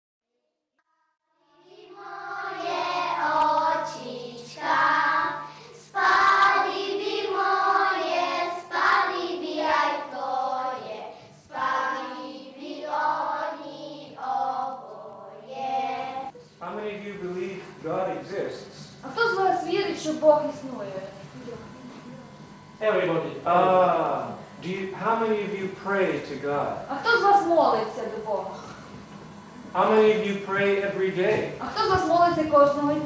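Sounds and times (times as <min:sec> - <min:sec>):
children singing together: 0:01.5 - 0:16.3.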